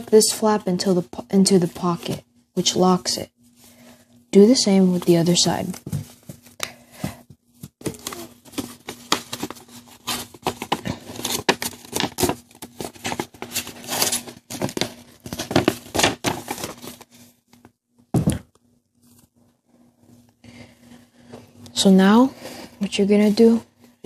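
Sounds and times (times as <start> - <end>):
paper crinkling and rustling: 7.6 - 17.4.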